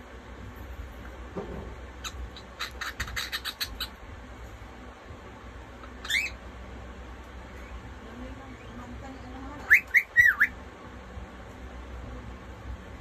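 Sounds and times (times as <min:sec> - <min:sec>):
cockatiel rising chirp: 0:05.8 - 0:06.4.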